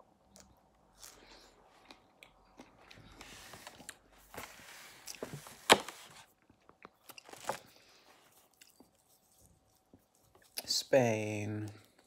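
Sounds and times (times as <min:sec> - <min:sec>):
chewing strawberry: 0:00.2 - 0:03.2, 0:08.3 - 0:10.7.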